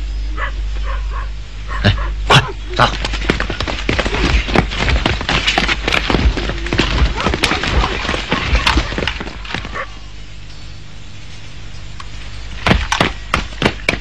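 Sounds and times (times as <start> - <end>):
raised voices: 0.4 - 4.8, 6.2 - 10.1
sharp knocks and thuds: 2.9 - 9.8, 12.6 - 14.0.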